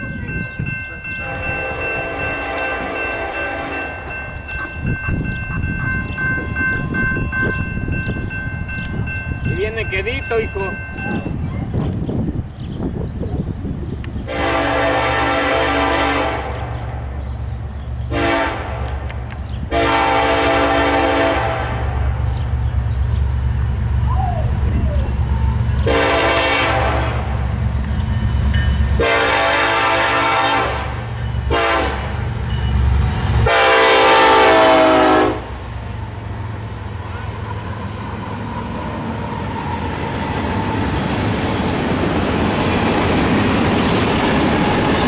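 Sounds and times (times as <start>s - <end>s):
crossing bell ringing: 0.0s - 11.8s, 27.5s - 30.4s, 31.0s - 34.0s
low rumble of locomotives: 0.0s - 45.0s
locomotive air horn: 1.2s - 4.1s, 14.3s - 16.6s, 18.1s - 18.9s, 19.7s - 21.8s, 25.8s - 27.4s, 29.0s - 32.2s, 33.4s - 35.5s.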